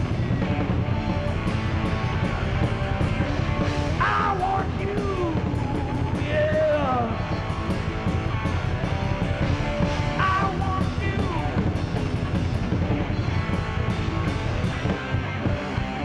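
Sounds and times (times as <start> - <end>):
bending guitar lead lines: 0.0 - 16.0
heavy metal band playing: 0.0 - 16.0.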